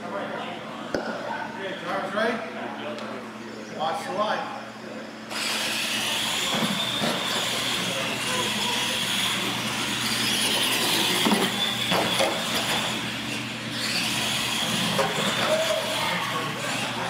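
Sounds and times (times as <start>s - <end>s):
toy truck motors whining: 5.3s - 17.0s.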